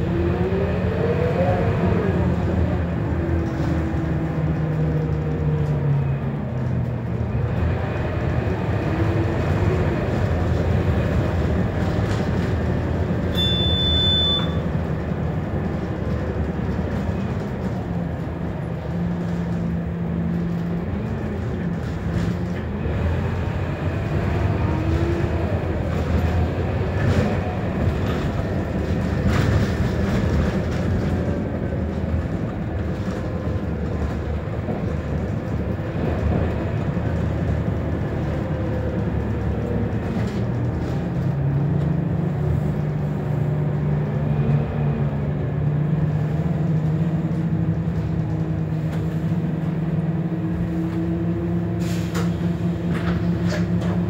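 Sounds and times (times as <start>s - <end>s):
bus diesel engine: 0.0s - 54.0s
short high beep: 13.3s - 14.6s.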